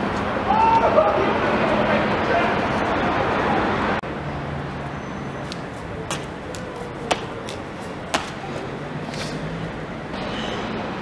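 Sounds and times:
street hum: 0.0s - 11.0s
footsteps on paving stones: 5.4s - 9.5s.

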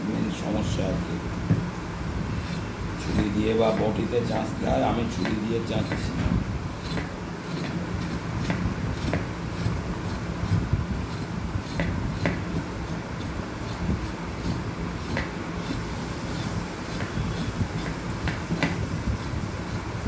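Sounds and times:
steady low hum: 0.0s - 20.0s
knife scraping vegetable skin: 2.3s - 4.5s, 5.2s - 20.0s.

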